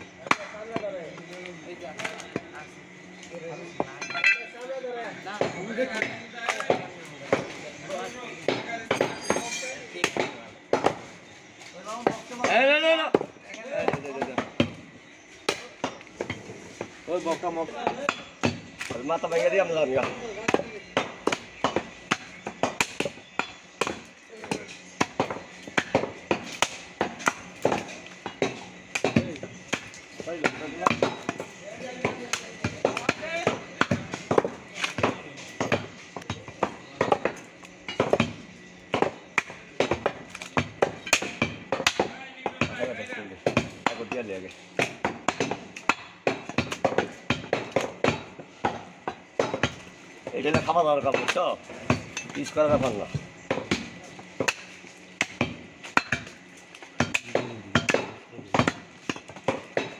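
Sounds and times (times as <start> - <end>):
cleaver chopping meat on wood: 20.0 - 37.4, 38.0 - 48.8, 49.4 - 56.4, 57.0 - 59.9.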